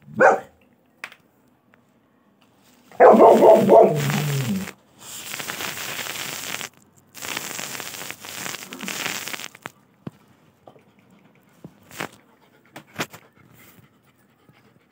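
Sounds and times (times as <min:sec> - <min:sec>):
pitched cry: 0:03.1 - 0:04.7.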